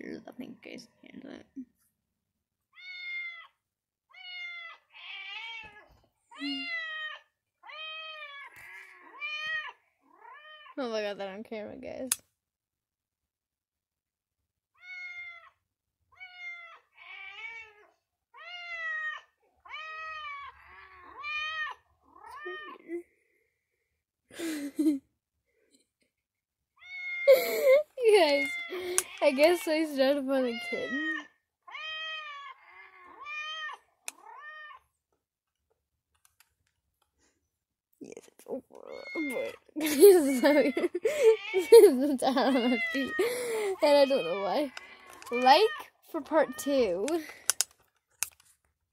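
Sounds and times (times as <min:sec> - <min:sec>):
cat meowing: 0:02.7 - 0:10.8, 0:14.8 - 0:15.6, 0:16.2 - 0:22.9, 0:30.5 - 0:34.9.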